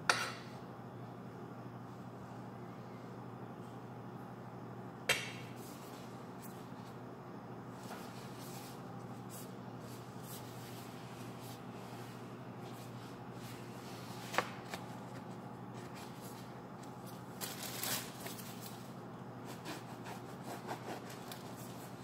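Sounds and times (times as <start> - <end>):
steady low hum: 0.0 - 22.0
plastic gloves rustling: 7.7 - 19.1.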